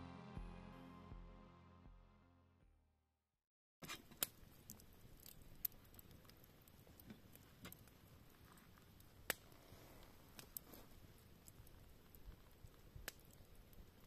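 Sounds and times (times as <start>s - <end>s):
campfire crackling and popping: 3.8s - 14.0s.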